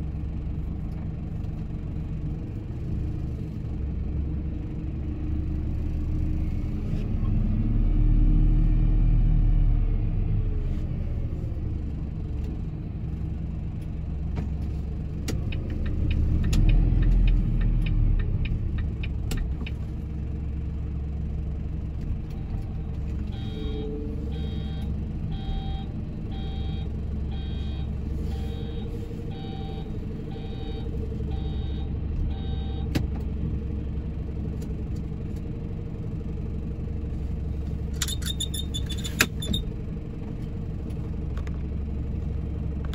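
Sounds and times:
truck engine idling: 11.3s - 42.9s
evenly spaced beeps: 23.3s - 32.9s.

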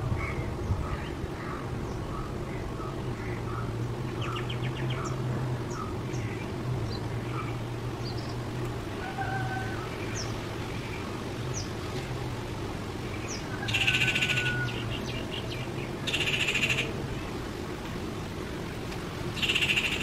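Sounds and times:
bird giving harsh rasping calls: 16.1s - 16.9s, 19.4s - 20.0s.

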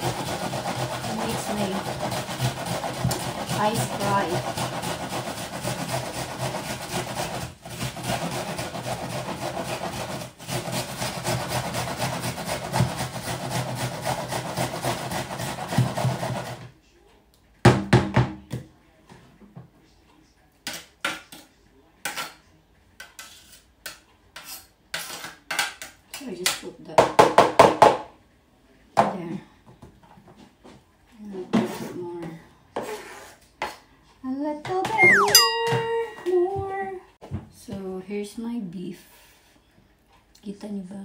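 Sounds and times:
onion grated on metal grater: 0.0s - 16.6s.

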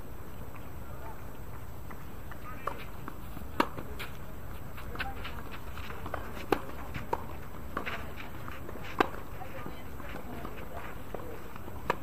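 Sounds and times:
footsteps on court: 1.3s - 12.0s
tennis ball bouncing: 1.8s - 12.0s
racket hitting tennis ball: 2.5s - 4.2s, 5.0s - 11.2s.

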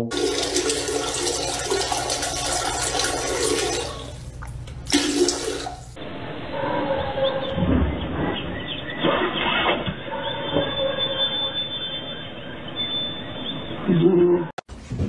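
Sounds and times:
toilet flushing: 0.0s - 6.0s.

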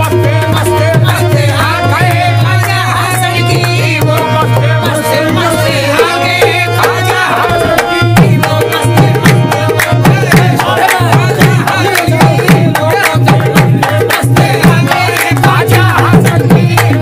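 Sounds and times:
person singing: 0.0s - 17.0s
tabla drumming: 0.0s - 17.0s
sustained melodic accompaniment: 0.1s - 13.1s.

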